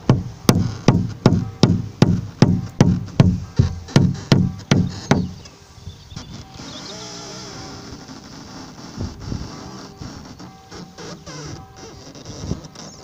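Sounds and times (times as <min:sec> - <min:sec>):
evenly spaced ringing knocks: 0:00.0 - 0:05.4.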